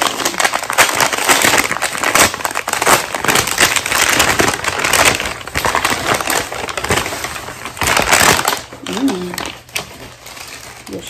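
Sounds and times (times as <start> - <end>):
seafood shells crackling and crunching: 0.0 - 11.0.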